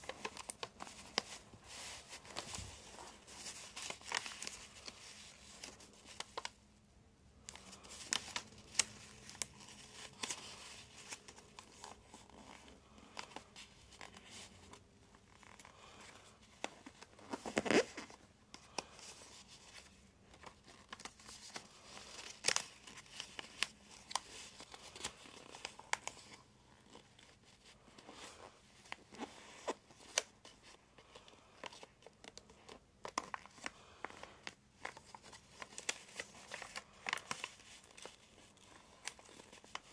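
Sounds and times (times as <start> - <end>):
paper crinkling and rustling: 0.0 - 6.7, 7.4 - 39.9.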